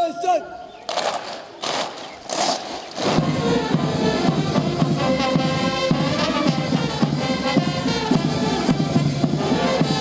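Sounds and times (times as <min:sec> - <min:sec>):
military brass band: 0:00.9 - 0:10.0
steady drum beat: 0:02.7 - 0:10.0.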